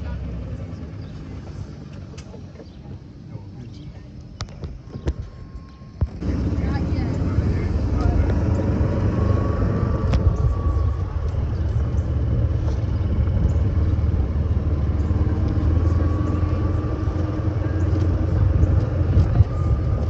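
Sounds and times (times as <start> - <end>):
golf cart rumbling: 0.0 - 20.0
faint whine: 0.4 - 20.0.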